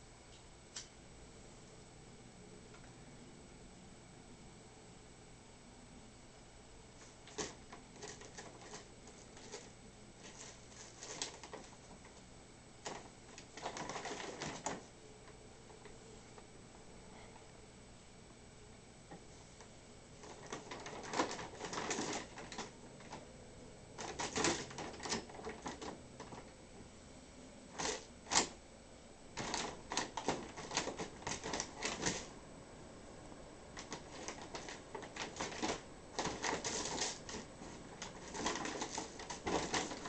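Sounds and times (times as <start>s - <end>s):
bag rustling and crinkling: 29.4s - 32.3s, 33.8s - 40.0s.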